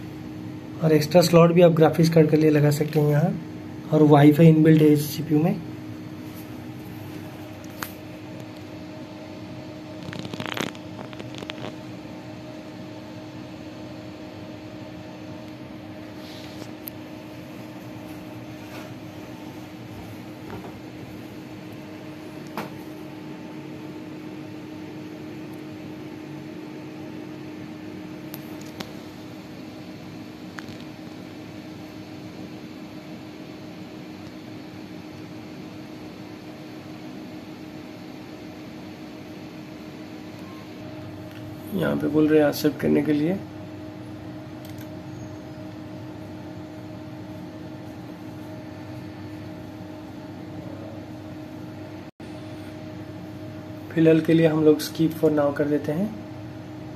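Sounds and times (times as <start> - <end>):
machine hum: 0.0 - 56.9
clicks: 44.6 - 44.9.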